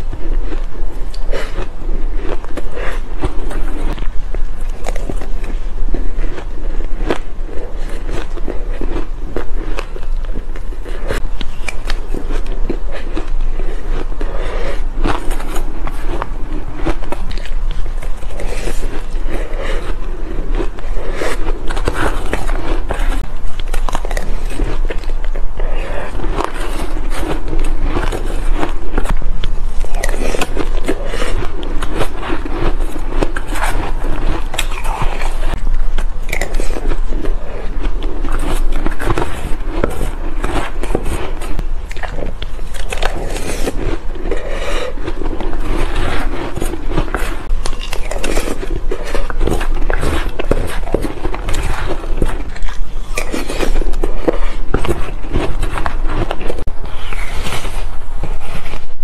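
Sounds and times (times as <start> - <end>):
chewing crushed ice: 0.0 - 59.0
metal spoon scraping ice: 42.6 - 58.0.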